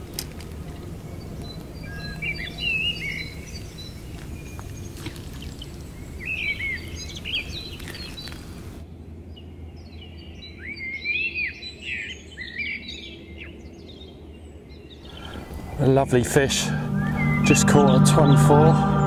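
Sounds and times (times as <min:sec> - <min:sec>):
small birds chirping: 0:00.0 - 0:08.8, 0:10.0 - 0:16.2
low outdoor rumble: 0:00.0 - 0:09.2.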